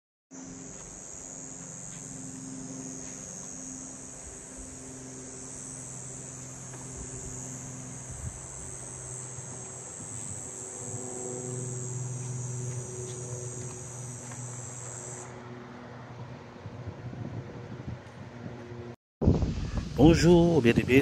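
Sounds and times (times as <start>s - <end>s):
insects chirring: 0.4s - 15.7s.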